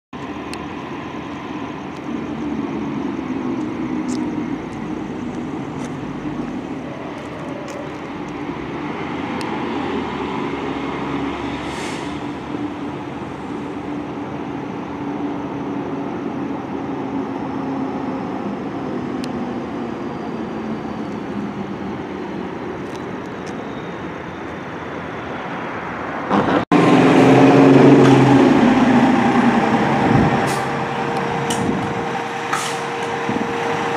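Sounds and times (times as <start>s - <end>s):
fire engine diesel drone: 0.2s - 33.9s
short air hiss: 11.6s - 12.2s.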